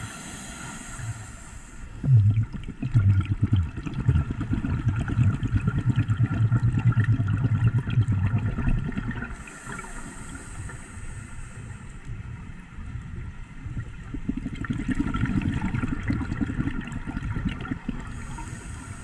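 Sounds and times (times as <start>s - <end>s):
regulator inhalation hiss: 0.0s - 2.1s, 9.4s - 12.0s, 18.1s - 19.0s
exhaled bubbles gurgling: 2.0s - 10.4s, 13.6s - 19.0s.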